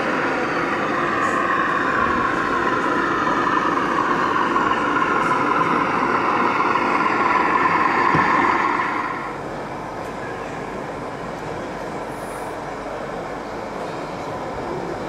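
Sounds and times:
model train running on track: 0.0s - 15.0s.

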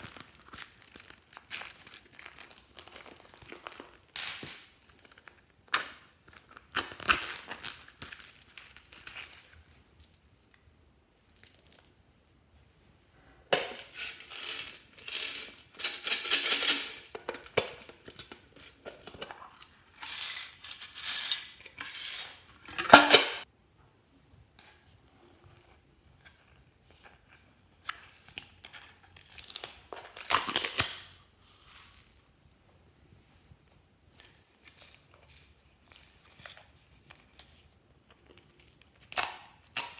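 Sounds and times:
crinkling and rustling: 0.0s - 11.9s, 13.5s - 23.2s
beads rattling against glass: 13.6s - 17.1s, 20.0s - 22.5s.

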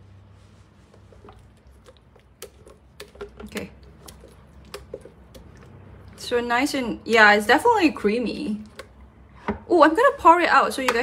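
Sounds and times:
spatula scraping dressing in jug: 0.6s - 6.3s
light clicks and knocks of jug: 0.9s - 5.7s.

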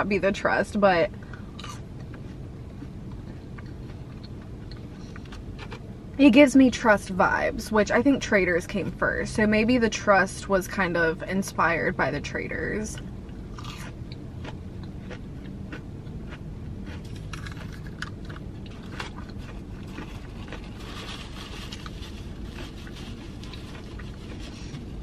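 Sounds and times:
low steady hum: 0.0s - 25.0s
person chewing crunchy food: 1.2s - 5.9s, 13.0s - 25.0s.

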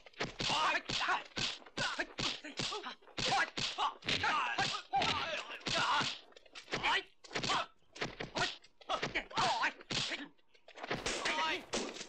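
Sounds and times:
fighters grunting and shouting: 0.4s - 10.2s, 11.0s - 11.9s
punch whacks: 10.9s - 12.0s.

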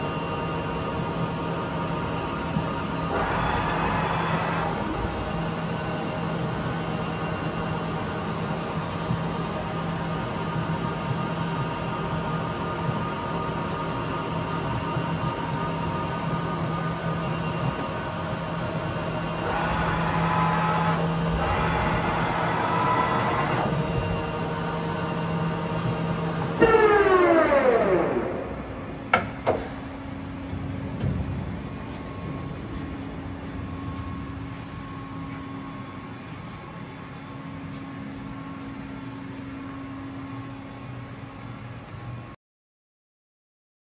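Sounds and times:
lathe high whine: 0.0s - 29.1s
low machine rumble: 0.0s - 42.3s
lathe mechanical hum: 0.0s - 42.4s.

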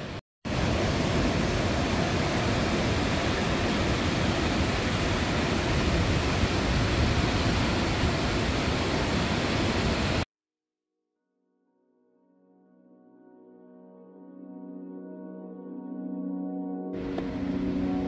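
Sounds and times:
waterfall thundering: 0.0s - 10.2s.

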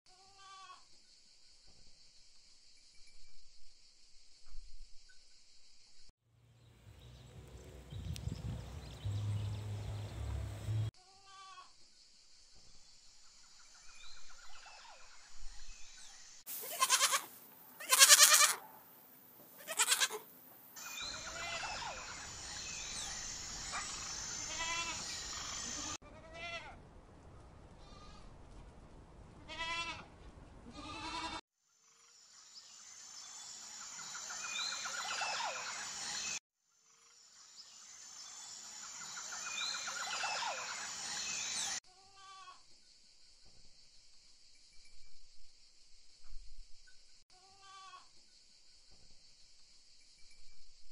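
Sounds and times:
steady high hiss: 16.1s - 26.0s
goats bleating: 16.6s - 18.6s, 19.6s - 20.2s, 30.7s - 31.4s.

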